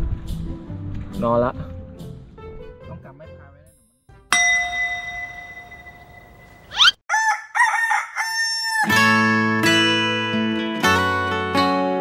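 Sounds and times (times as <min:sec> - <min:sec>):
ringing tone: 0:04.3 - 0:06.9
rooster crowing: 0:07.1 - 0:09.0
acoustic guitar music: 0:09.0 - 0:12.0.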